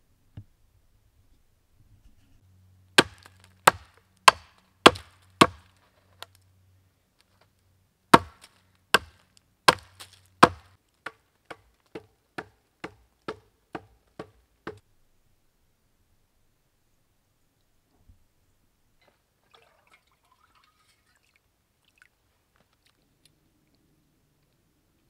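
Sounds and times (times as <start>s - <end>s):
blade chopping wood: 3.0s - 5.8s, 8.1s - 14.8s.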